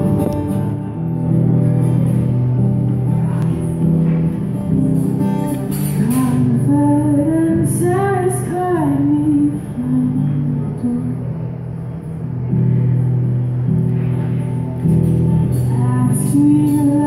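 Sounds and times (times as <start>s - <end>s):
acoustic guitar strumming chords: 0.0s - 17.0s
woman singing: 5.8s - 11.4s, 15.6s - 17.0s.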